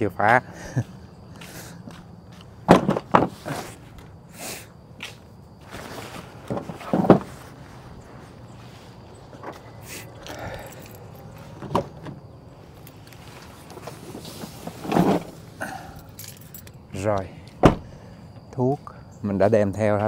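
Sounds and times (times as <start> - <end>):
footsteps on concrete: 0.3 - 2.6, 5.0 - 5.6.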